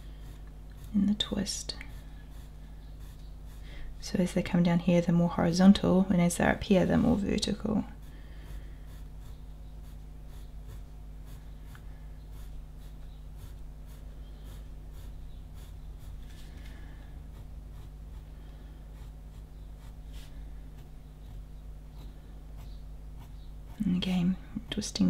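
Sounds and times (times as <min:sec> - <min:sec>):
pencil scratching on paper: 0:00.0 - 0:03.6, 0:08.0 - 0:16.4, 0:17.3 - 0:18.3, 0:18.9 - 0:21.4, 0:22.0 - 0:23.8
low electrical hum: 0:00.0 - 0:25.0.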